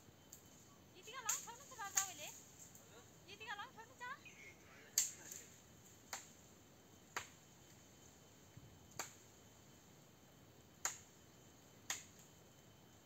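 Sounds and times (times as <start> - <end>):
blade chopping tree branches: 1.3 - 2.2.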